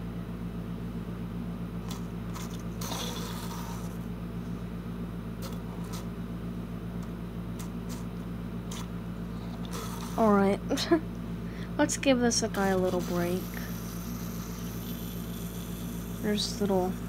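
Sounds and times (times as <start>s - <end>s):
wind-up motor whirring: 12.6s - 17.0s.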